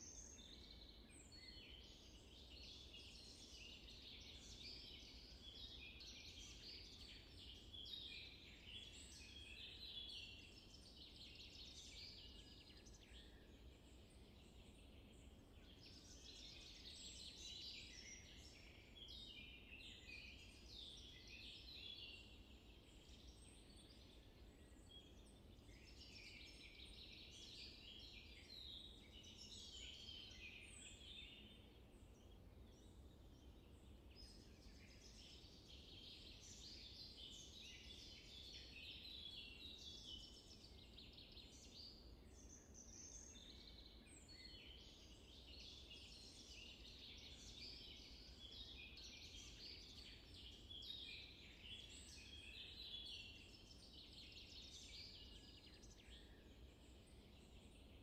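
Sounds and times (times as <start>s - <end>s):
songbirds twittering: 0.0s - 58.0s.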